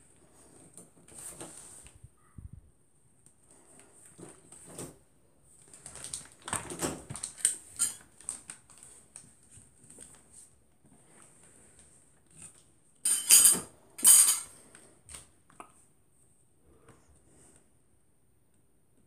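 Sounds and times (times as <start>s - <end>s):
cardboard box and packets rustling: 4.1s - 10.6s.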